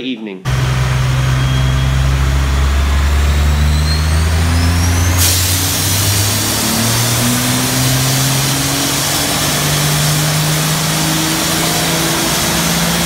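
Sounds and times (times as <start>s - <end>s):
diesel engine running: 0.5s - 13.0s
high whistle: 0.9s - 9.1s
fire extinguisher spraying: 3.9s - 13.0s.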